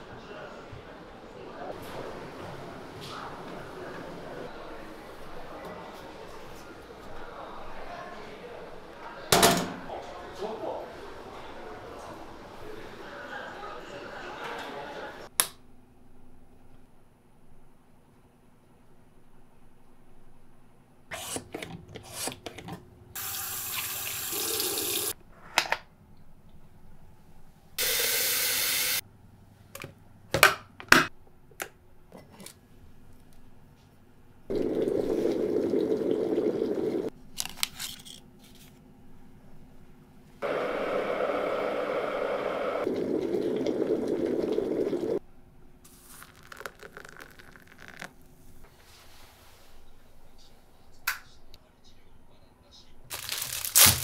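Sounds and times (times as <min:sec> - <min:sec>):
hot water pouring into cup: 0:23.2 - 0:25.2, 0:34.5 - 0:37.1, 0:40.4 - 0:45.2, 0:46.0 - 0:48.1
packets rustling: 0:53.1 - 0:54.0.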